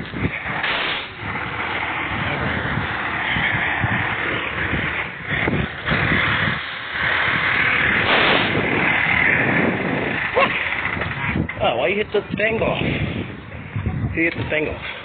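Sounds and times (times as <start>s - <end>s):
diesel engine running: 0.0s - 15.0s
wind buffeting microphone: 0.0s - 15.0s.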